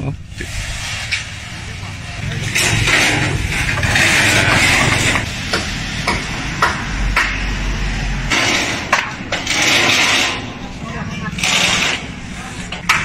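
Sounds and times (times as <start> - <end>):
sheet metal flexing and rattling: 0.4 - 6.4, 8.2 - 13.0
sharp metallic knocks: 2.4 - 10.6.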